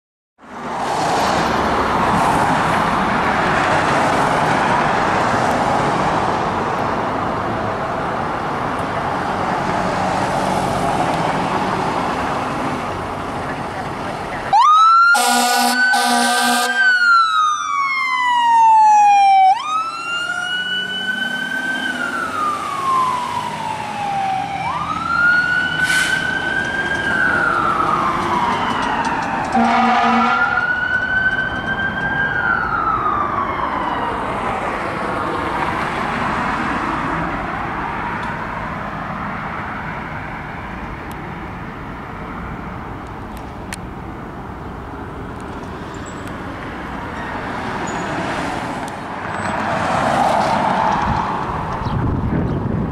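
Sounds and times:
fire engine siren wailing: 14.3s - 38.2s
horn blasts: 15.2s - 17.0s, 29.6s - 30.6s.

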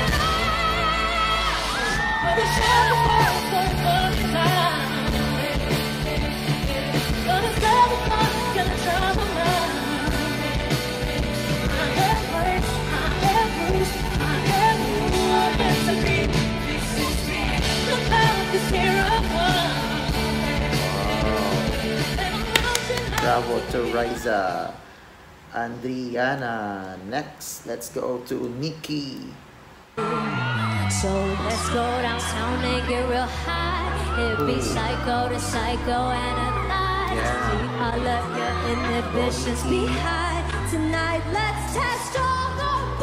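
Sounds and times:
electric guitar: 0.0s - 23.7s
woman singing: 0.0s - 24.5s, 30.0s - 43.0s
drums: 0.0s - 24.6s.

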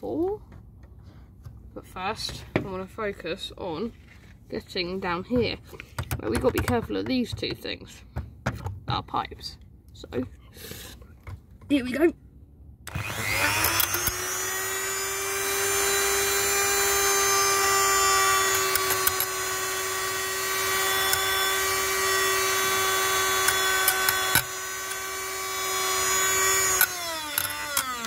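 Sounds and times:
rotary tool high-pitched whine: 12.9s - 28.0s.

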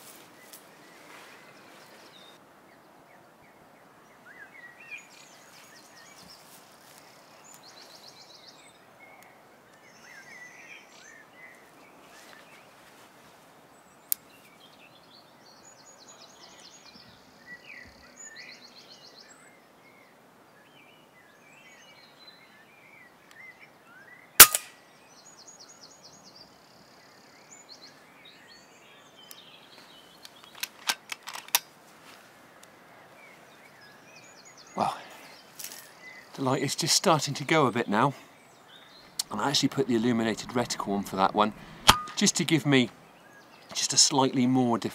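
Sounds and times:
birds chirping and trilling: 0.4s - 12.9s, 13.7s - 30.9s, 32.4s - 44.9s
air rifle shot: 24.4s - 24.7s, 41.6s - 42.3s.

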